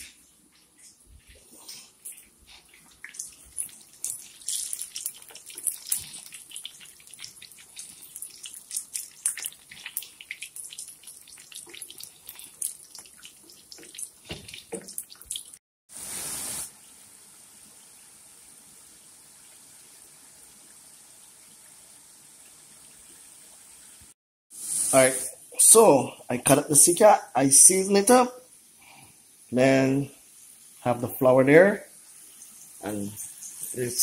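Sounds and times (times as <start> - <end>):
chips deep-frying in oil: 1.7 - 16.7.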